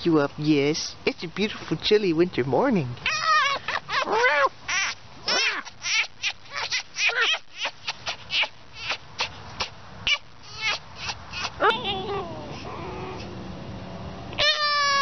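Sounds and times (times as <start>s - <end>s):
fox high-pitched whining calls: 3.0s - 9.4s, 10.1s - 13.3s, 14.4s - 15.0s.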